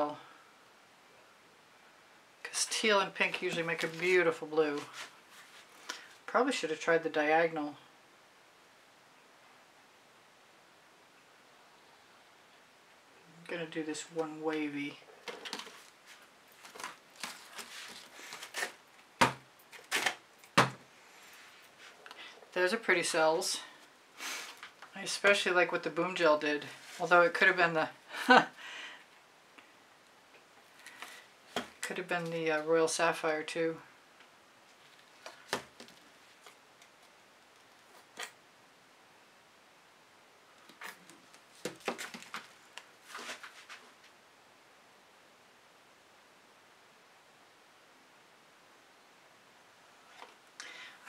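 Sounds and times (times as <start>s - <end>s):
small knocks and rasps: 15.2s - 20.8s, 34.2s - 38.4s, 40.6s - 44.1s.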